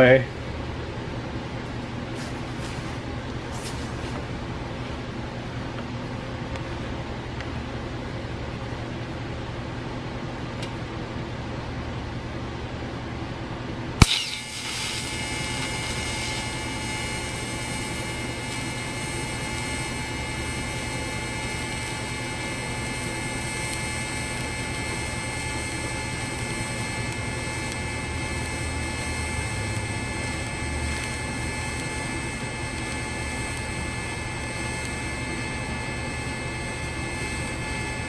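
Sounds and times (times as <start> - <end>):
welding arc hiss and hum: 0.0 - 0.4, 14.0 - 38.0
welding arc crack: 14.0 - 38.0.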